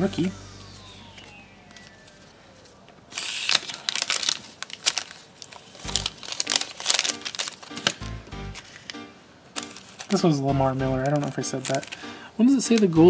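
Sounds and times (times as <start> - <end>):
foil wrapper crinkling: 1.1 - 9.0, 9.6 - 10.4, 11.0 - 13.0.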